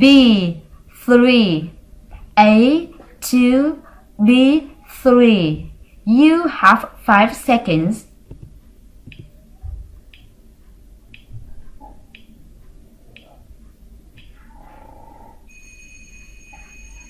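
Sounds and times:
soft low thumps: 8.1 - 14.6
clock ticking: 8.2 - 14.6
alarm clock ringing: 15.5 - 17.0.

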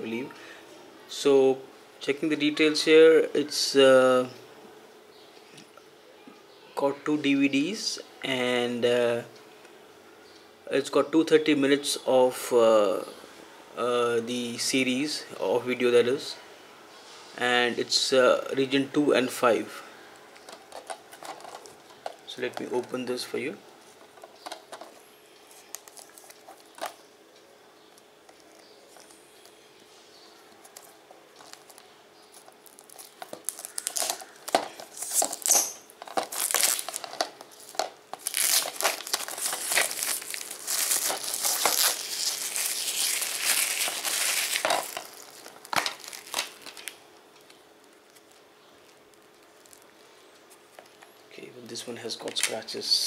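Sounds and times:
plastic shrink-wrap crinkling: 20.4 - 22.9, 25.6 - 27.0, 30.4 - 51.1.

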